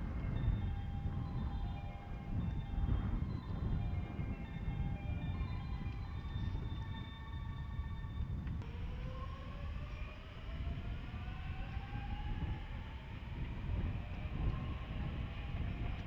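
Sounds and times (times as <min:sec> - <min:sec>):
electric train motor whine: 0:00.0 - 0:16.0
low rumble: 0:00.0 - 0:16.0
steady humming tones: 0:00.0 - 0:16.0.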